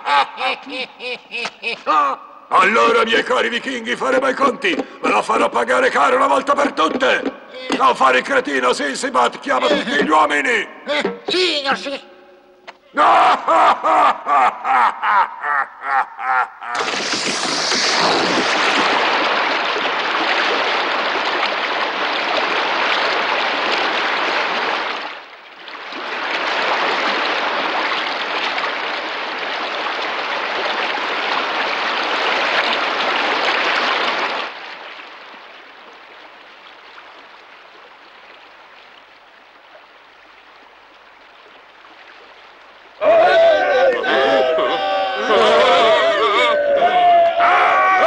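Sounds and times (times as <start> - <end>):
cartoon water gushing: 2.7 - 8.6, 16.6 - 24.1.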